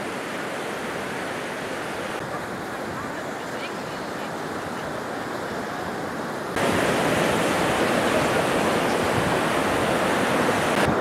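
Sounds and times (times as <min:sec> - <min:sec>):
sea surf: 0:00.0 - 0:11.0
wind: 0:00.0 - 0:11.0.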